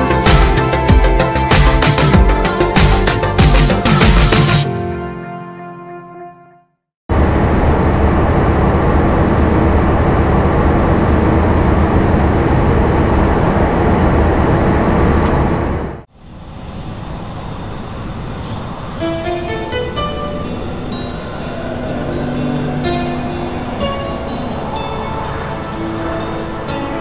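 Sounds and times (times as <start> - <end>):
cockpit air and engine rush: 7.1 - 27.0
low hum: 7.1 - 27.0.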